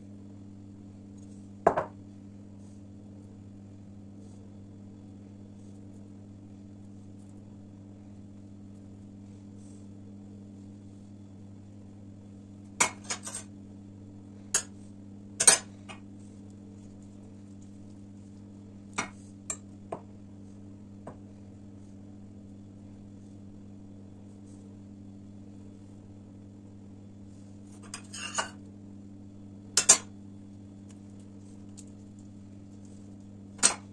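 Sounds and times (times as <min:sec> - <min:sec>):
steady low hum: 0:00.0 - 0:33.9.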